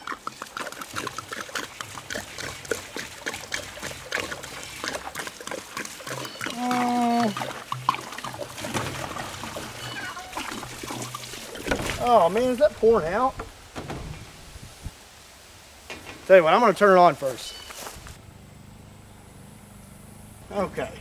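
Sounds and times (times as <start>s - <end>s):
water glugging from a jug: 0.0s - 14.7s
person grunting: 6.6s - 7.3s.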